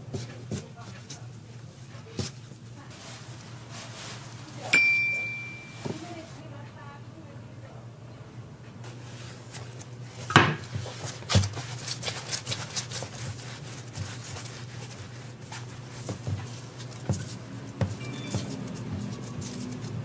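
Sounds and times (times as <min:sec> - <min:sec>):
hands tapping and rubbing dough: 0:00.0 - 0:03.1, 0:08.9 - 0:20.0
dough thumping on table: 0:10.2 - 0:12.1, 0:13.2 - 0:19.3.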